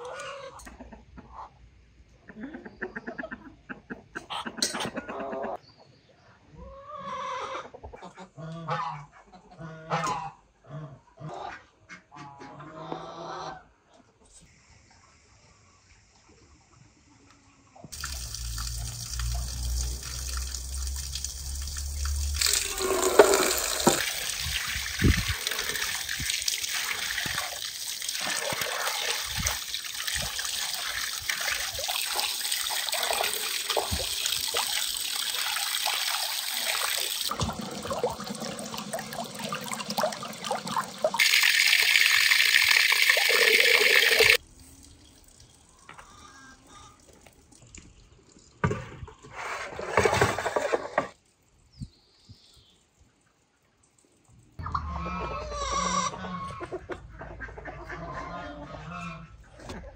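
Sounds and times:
steady water pour: 17.9s - 45.8s
water splashing over meat: 18.0s - 44.4s.

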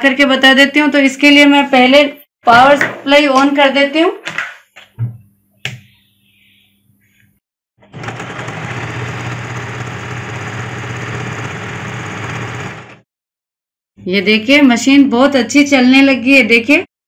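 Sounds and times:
electric sewing machine sewing: 7.8s - 13.0s.

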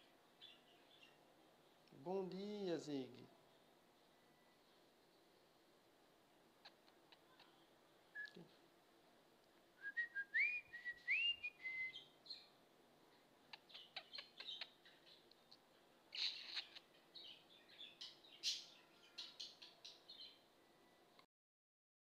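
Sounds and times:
budgerigar chattering: 13.5s - 14.8s, 16.2s - 16.9s.

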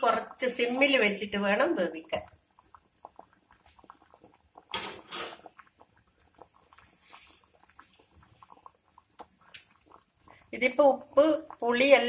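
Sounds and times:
curry bubbling in a clay pot: 0.0s - 12.0s.

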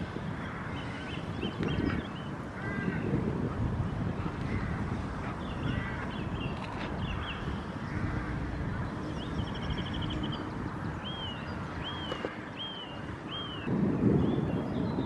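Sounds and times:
wind rumbling on microphone: 0.0s - 15.0s
bird calls rising and falling: 5.3s - 15.0s
bird trill: 5.4s - 15.0s.

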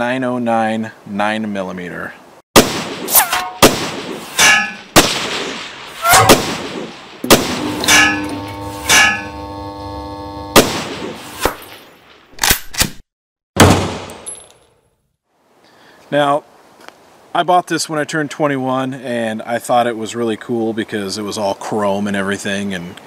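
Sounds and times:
gunshots: 2.6s - 8.3s, 10.6s - 11.7s, 13.6s - 14.2s
metallic ringing: 4.4s - 4.9s, 7.6s - 9.8s.

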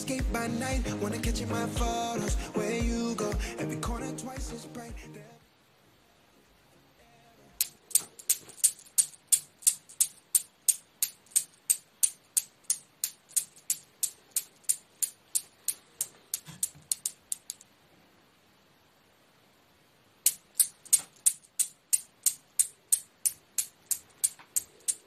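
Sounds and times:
newton's cradle balls clicking: 7.6s - 17.7s, 20.2s - 25.0s.

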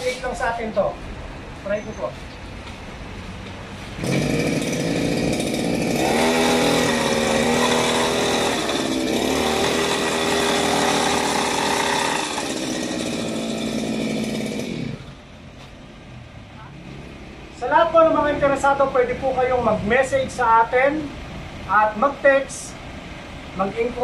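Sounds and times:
brush cutter engine revving: 4.0s - 15.2s.

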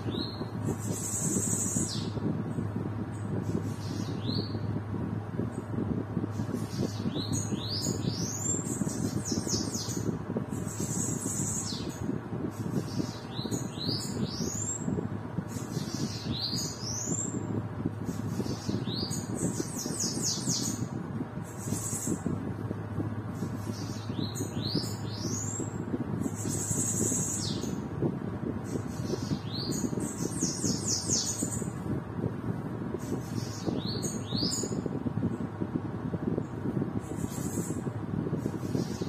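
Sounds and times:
bird singing high-pitched song: 0.0s - 4.7s, 6.3s - 22.3s, 23.4s - 27.9s, 28.6s - 31.8s, 33.0s - 35.0s, 38.4s - 39.0s
steady low hum: 0.0s - 39.0s.

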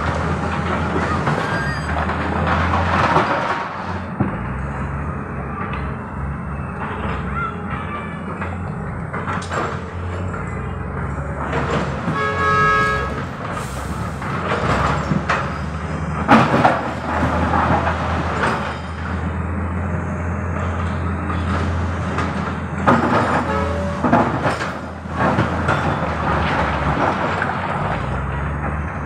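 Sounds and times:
diesel engines running: 0.0s - 29.0s.

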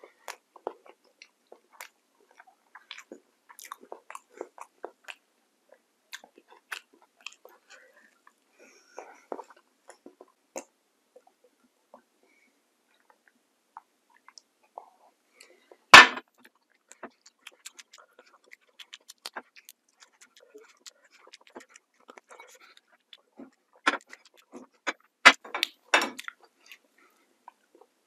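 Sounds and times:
eating crunches: 0.2s - 5.2s, 16.3s - 26.9s
mouth clicks and smacks: 0.2s - 5.2s, 6.1s - 7.8s, 16.3s - 26.9s.

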